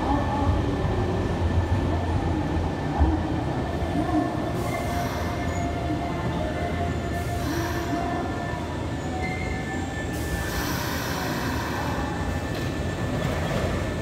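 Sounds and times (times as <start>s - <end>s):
electric train hum and whine: 0.0s - 14.0s.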